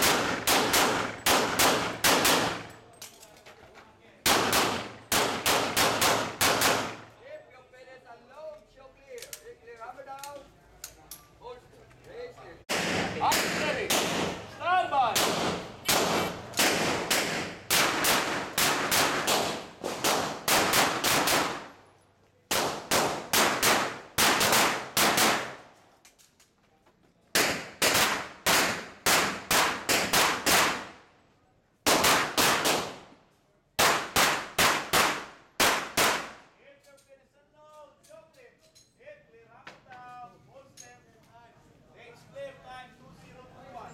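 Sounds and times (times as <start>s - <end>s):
rapid pistol shots: 0.0s - 2.7s, 4.2s - 7.1s, 12.7s - 14.5s, 15.1s - 21.8s, 22.5s - 25.6s, 27.4s - 30.9s, 31.9s - 33.0s, 33.8s - 36.4s.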